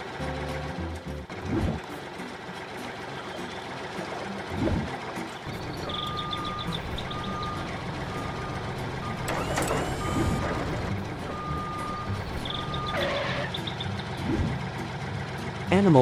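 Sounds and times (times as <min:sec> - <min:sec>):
tractor engine rumble: 0:01.8 - 0:15.7
reversing alarm beeping: 0:05.5 - 0:13.8.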